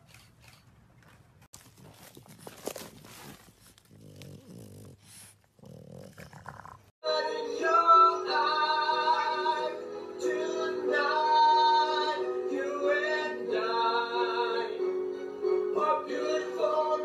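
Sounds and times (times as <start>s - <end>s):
person singing with music: 7.0s - 17.0s.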